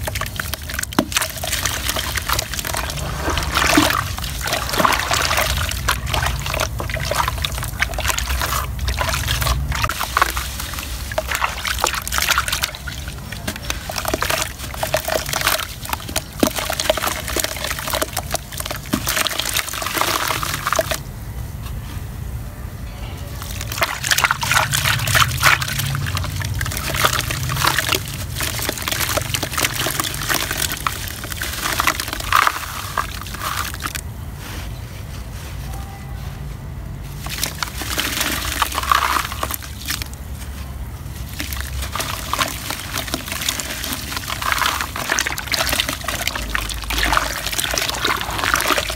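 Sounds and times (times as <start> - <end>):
dirt lumps dropping into water: 0.0 - 21.0, 37.2 - 40.3, 41.2 - 48.9
hands squelching mud water: 0.0 - 21.0, 23.4 - 35.2, 37.1 - 48.9.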